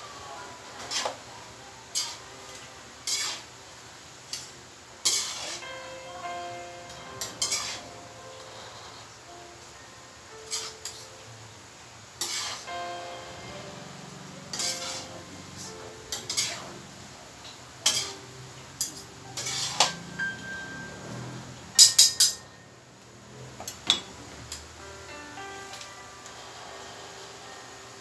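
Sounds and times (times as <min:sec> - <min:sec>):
metal utensils scraping a wok: 0:00.8 - 0:01.2, 0:01.9 - 0:02.3, 0:03.0 - 0:03.5, 0:04.3 - 0:05.7, 0:07.2 - 0:08.0, 0:10.5 - 0:11.0, 0:12.2 - 0:12.7, 0:14.5 - 0:16.8, 0:17.8 - 0:20.8.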